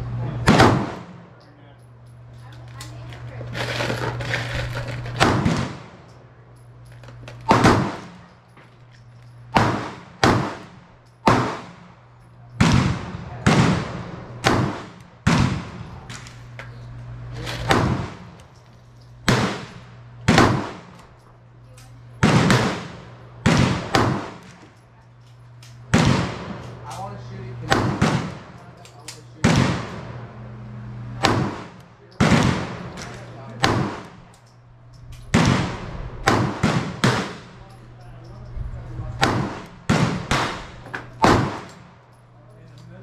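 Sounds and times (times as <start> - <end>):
pistol gunshots: 0.4 - 1.2, 5.1 - 6.1, 7.4 - 8.2, 9.5 - 16.5, 17.6 - 18.6, 19.2 - 21.2, 22.2 - 24.7, 25.7 - 27.0, 27.6 - 28.6, 29.4 - 30.2, 31.1 - 34.4, 35.2 - 37.6, 39.1 - 42.0.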